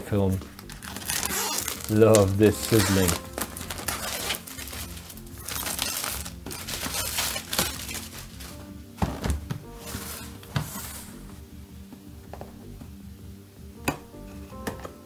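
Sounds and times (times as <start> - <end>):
plastic film crinkling: 0.2 - 11.2
box thunking down: 9.0 - 11.0.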